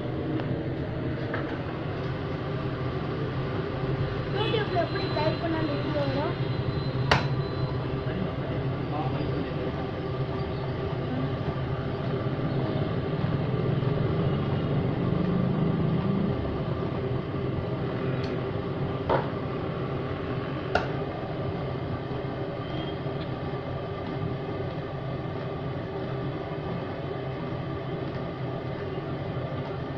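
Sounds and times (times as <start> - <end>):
kitchen machinery humming: 0.0 - 29.9.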